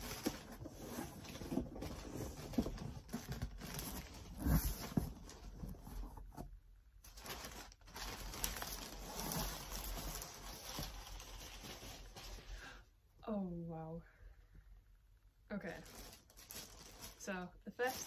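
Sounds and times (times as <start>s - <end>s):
packing paper rustling and crumpling: 0.0s - 6.2s, 7.0s - 12.7s, 15.7s - 18.0s.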